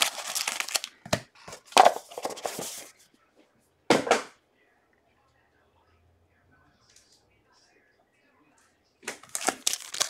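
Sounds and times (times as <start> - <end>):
cardboard and wrappers rustling: 0.0 - 3.0, 9.2 - 10.0.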